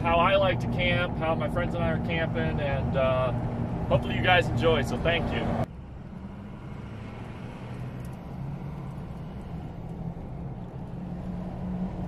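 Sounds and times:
truck engine and road drone: 0:00.0 - 0:12.0.

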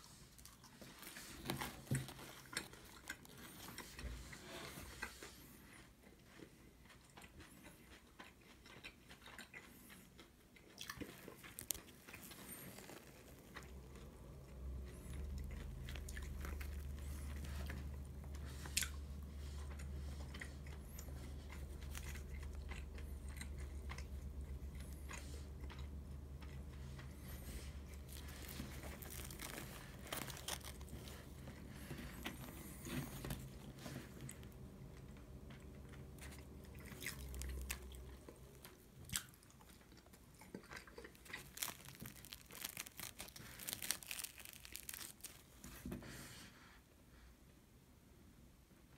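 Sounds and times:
low steady hum: 0:00.0 - 0:48.9
bread crust crackling: 0:10.7 - 0:45.9.

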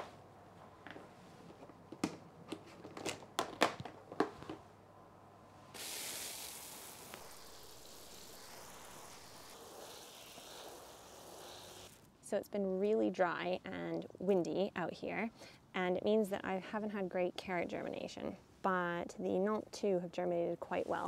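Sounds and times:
plastic boxes clacking together: 0:01.9 - 0:04.6
garden hose spray hissing: 0:05.8 - 0:12.0.

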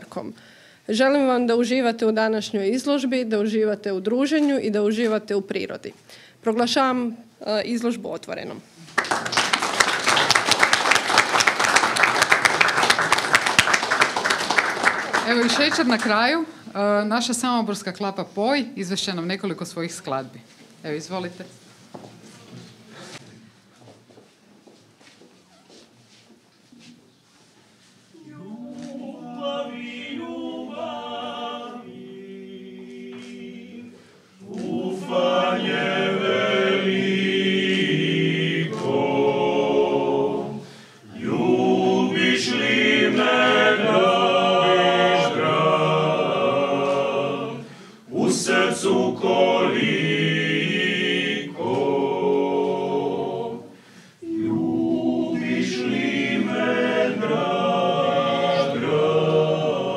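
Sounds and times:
male a cappella group singing: 0:28.1 - 0:59.9.

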